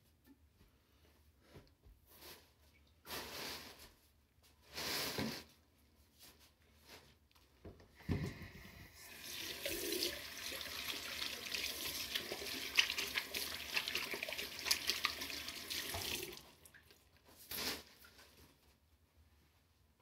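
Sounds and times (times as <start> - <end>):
water running from a tap: 9.0 - 17.0.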